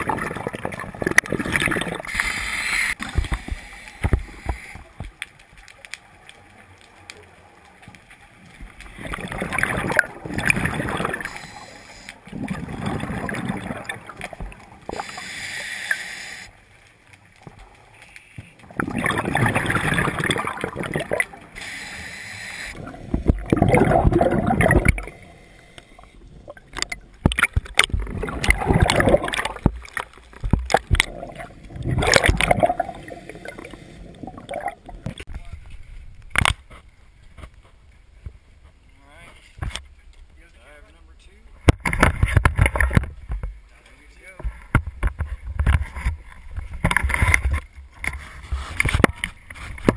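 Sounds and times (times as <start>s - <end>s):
bubbling exhalations: 0.0s - 3.5s, 9.0s - 11.4s, 12.3s - 15.4s, 18.6s - 21.8s, 22.7s - 25.4s, 26.0s - 30.0s, 30.6s - 35.3s
scuba regulator breathing: 2.1s - 5.0s, 11.2s - 12.3s, 14.9s - 16.7s, 21.5s - 23.4s, 25.0s - 26.4s, 32.8s - 34.4s.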